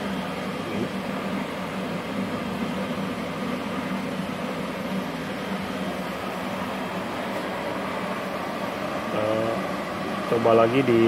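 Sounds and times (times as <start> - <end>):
welding machine fan whir: 0.0 - 11.0.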